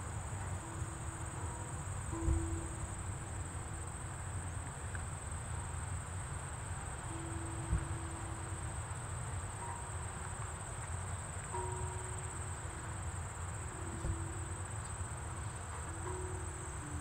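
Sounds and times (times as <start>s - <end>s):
crickets chirring: 0.0s - 17.0s
tubular wind chimes: 0.0s - 17.0s.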